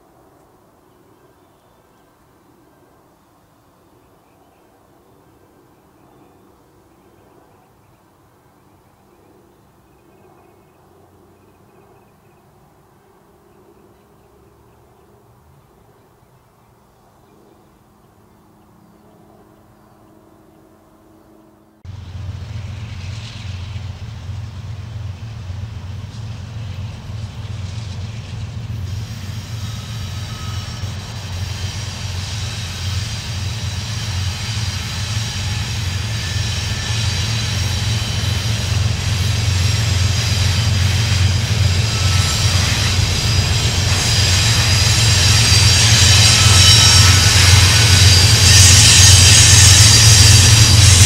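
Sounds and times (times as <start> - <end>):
locomotive engine rumble: 21.9 - 51.0
thin high whine: 40.6 - 51.0.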